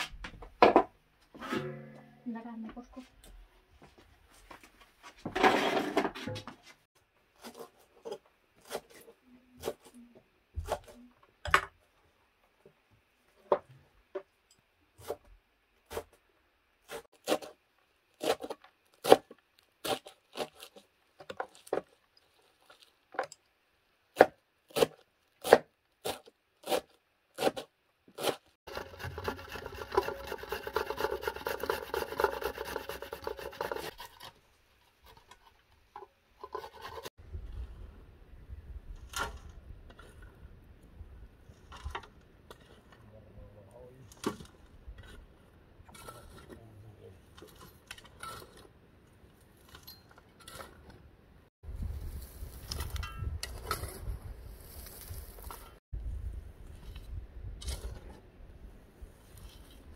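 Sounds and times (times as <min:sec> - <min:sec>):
box grater rasping over bowl: 0:28.2 - 0:34.4.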